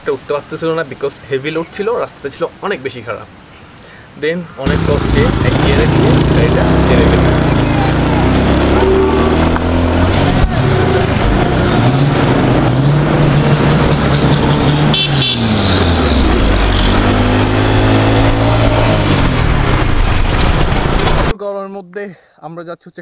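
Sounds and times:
motorcycle engine running: 0:04.7 - 0:11.8
horn toot: 0:14.2 - 0:19.4.

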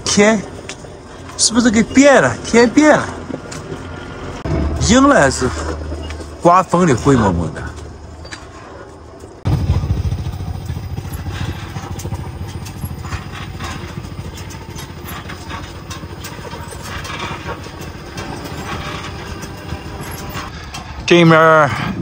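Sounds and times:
vehicle engine running: 0:08.9 - 0:21.1.

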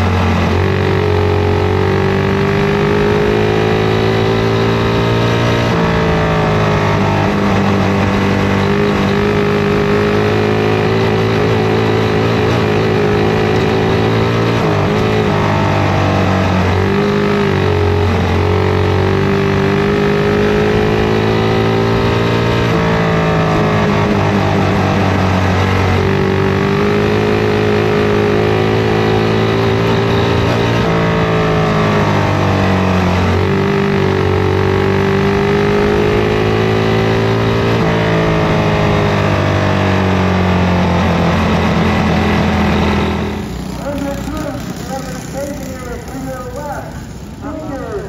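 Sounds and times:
racing kart engine: 0:00.0 - 0:48.0.

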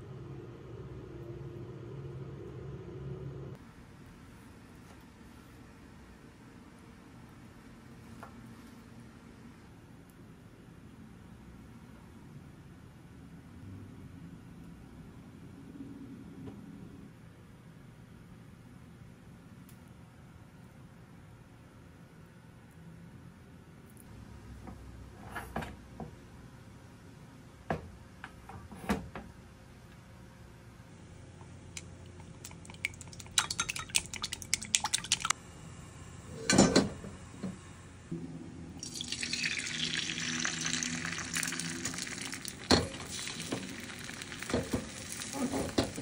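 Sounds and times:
egg sizzling in pan: 0:38.8 - 0:46.0.

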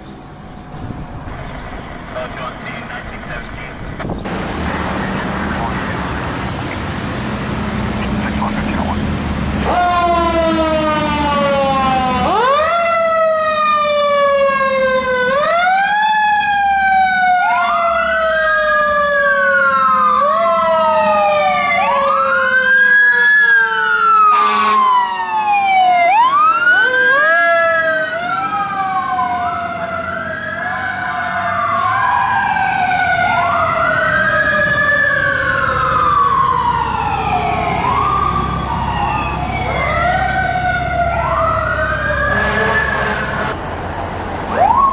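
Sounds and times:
low engine rumble: 0:00.0 - 0:09.5
fire truck siren wailing: 0:00.2 - 0:44.9.

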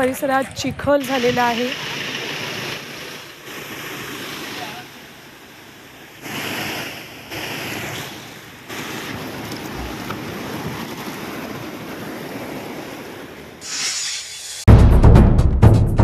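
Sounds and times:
floodwater rushing: 0:01.0 - 0:14.2
wind buffeting microphone: 0:08.8 - 0:13.5.

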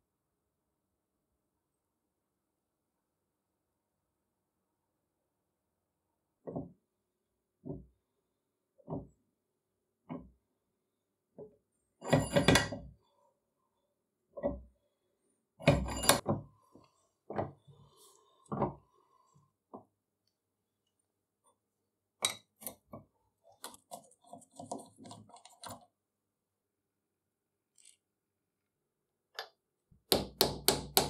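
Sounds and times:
small clicks and rattles: 0:27.7 - 0:28.0.

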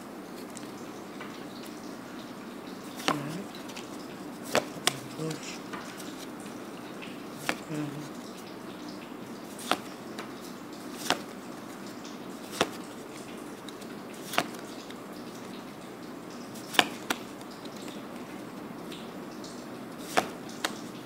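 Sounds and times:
cards snapping with sharp clicks: 0:03.0 - 0:03.9, 0:04.5 - 0:05.3, 0:07.4 - 0:07.8, 0:09.6 - 0:10.0, 0:11.0 - 0:11.4, 0:12.5 - 0:12.9, 0:13.6 - 0:15.0, 0:16.6 - 0:18.0, 0:20.0 - 0:20.9.

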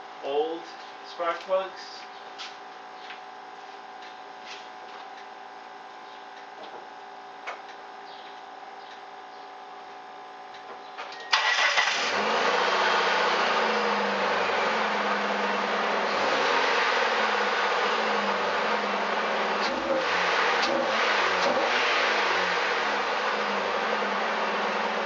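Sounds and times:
car engine starting and idling: 0:11.2 - 0:25.0.

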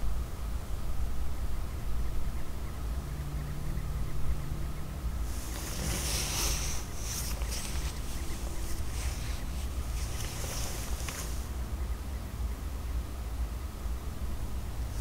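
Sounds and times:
high hissing rush: 0:05.2 - 0:11.6.

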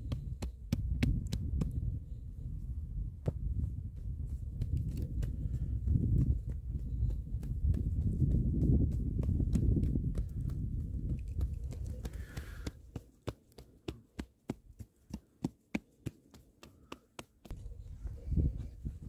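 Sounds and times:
hands slapping dough: 0:07.3 - 0:17.5.

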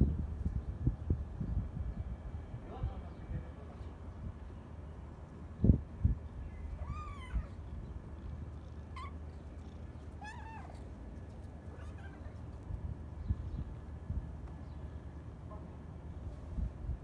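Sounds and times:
cat meowing: 0:06.5 - 0:07.6, 0:08.9 - 0:09.5, 0:10.1 - 0:10.9, 0:11.7 - 0:12.5.

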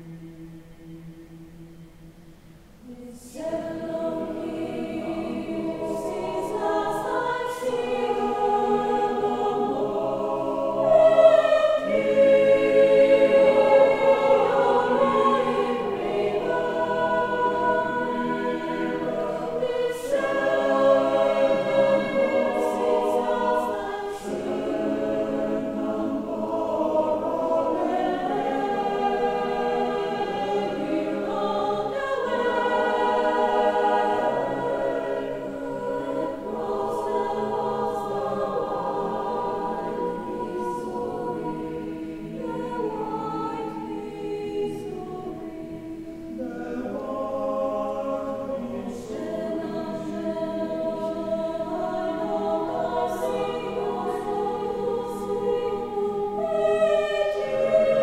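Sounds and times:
mixed choir singing: 0:00.0 - 0:58.0.

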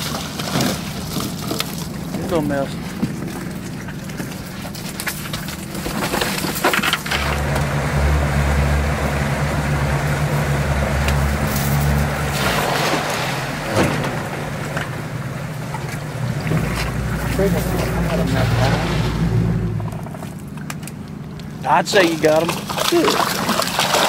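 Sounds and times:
boat motor running: 0:00.0 - 0:24.0.

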